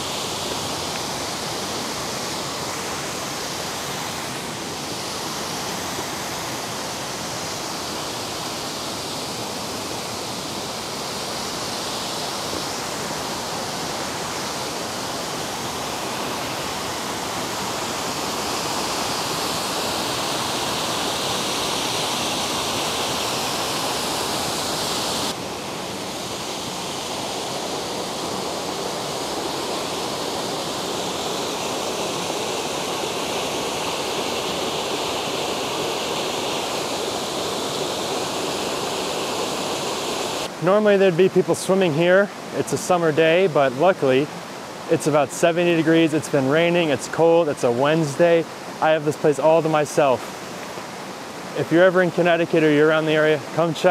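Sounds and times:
water rushing down cascades: 0.0 - 53.9.

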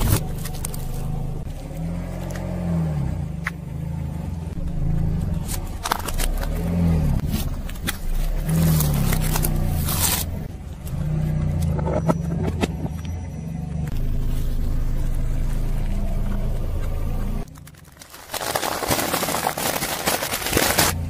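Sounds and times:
tyre crushing small objects: 0.0 - 2.6, 4.9 - 11.0, 15.3 - 21.0
car engine running slowly: 0.0 - 18.2.

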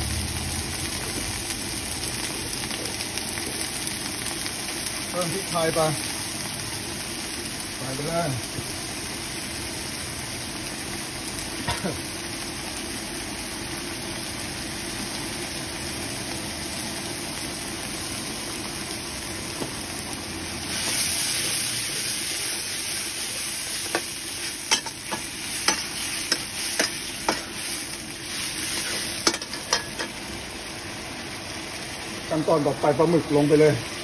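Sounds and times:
sauce sizzling in a wok: 0.0 - 34.0
spatula scraping a wok: 20.7 - 30.2.

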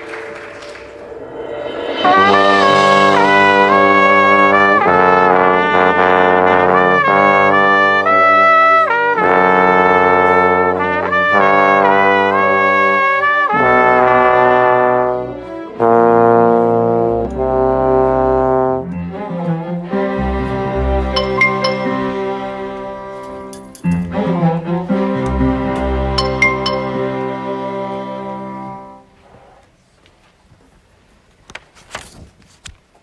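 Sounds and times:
trombone playing held notes: 1.9 - 19.0, 20.1 - 23.7, 24.3 - 29.2.

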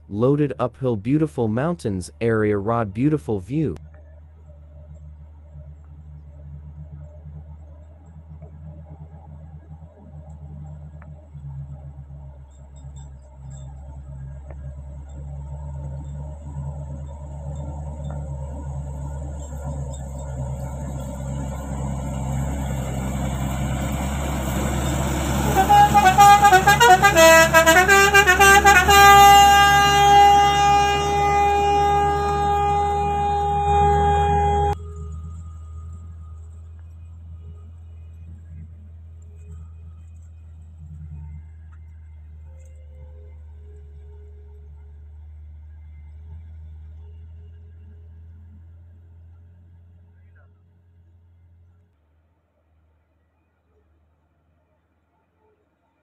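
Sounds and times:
low engine hum: 0.0 - 56.0
truck musical horn: 14.6 - 36.6
faint low hum: 29.6 - 56.0.

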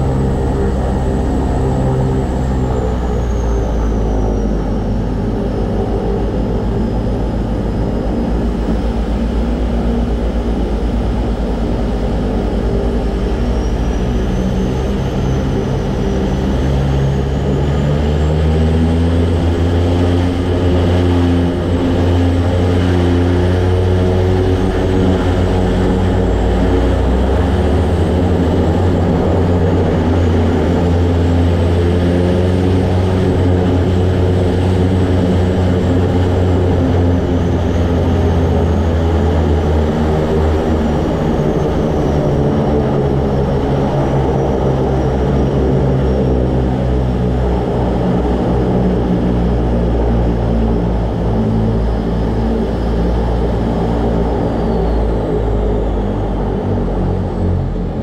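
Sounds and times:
high turbine whine: 0.0 - 58.0
propeller drone: 0.0 - 58.0.

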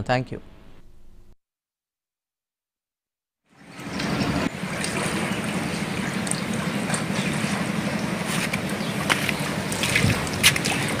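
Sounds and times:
river floodwater flowing: 3.6 - 11.0.

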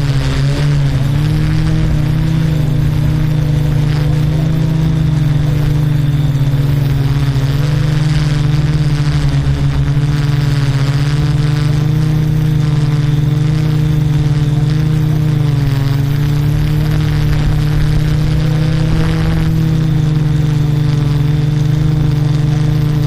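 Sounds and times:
drone propellers humming: 0.0 - 23.0.

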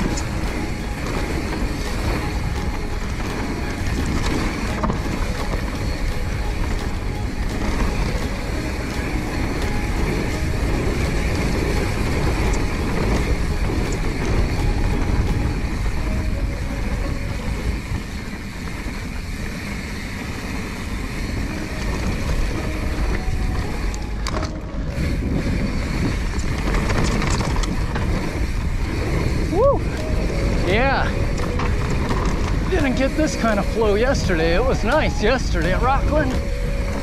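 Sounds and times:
bike rattling: 0.0 - 37.0
tyres rolling on dirt: 0.0 - 37.0
wind rushing over microphone: 0.0 - 37.0.

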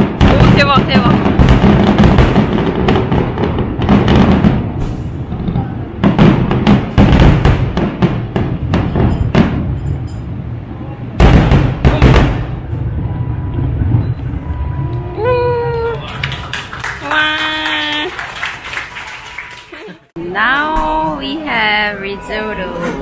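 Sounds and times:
fireworks booming and crackling: 0.0 - 16.4.

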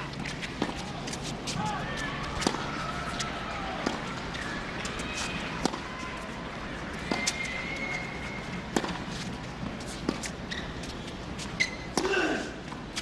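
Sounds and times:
crowd hum: 0.0 - 11.6
sneakers squeaking: 0.0 - 13.0
racket striking tennis ball: 2.3 - 5.8, 8.7 - 9.1.

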